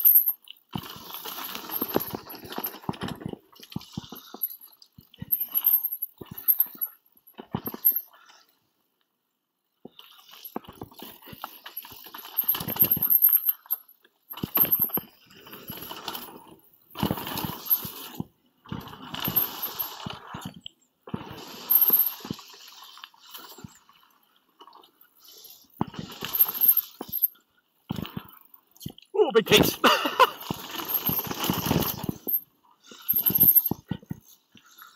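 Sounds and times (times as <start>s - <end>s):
bike knocking and rattling: 0.8s - 4.3s.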